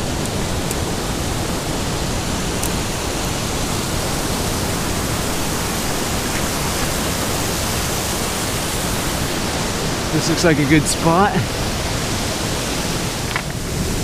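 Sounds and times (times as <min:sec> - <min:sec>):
surf: 0:03.6 - 0:14.0.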